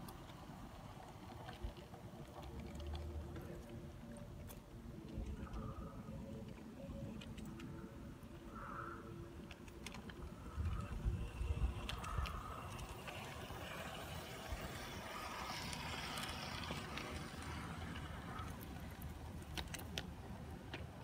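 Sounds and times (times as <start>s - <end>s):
wheels clicking over rails: 0.0s - 21.0s
model train motor whirr: 10.0s - 20.0s.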